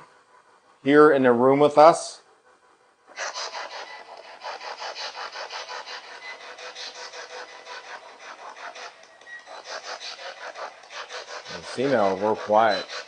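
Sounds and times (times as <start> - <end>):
choppy white-noise static: 3.1 - 13.0.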